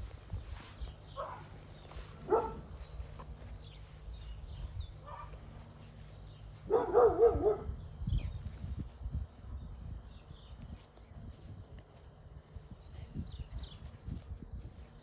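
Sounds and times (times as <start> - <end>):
small dog barking: 1.2 - 1.5, 2.2 - 2.7, 5.0 - 5.4, 6.7 - 7.7.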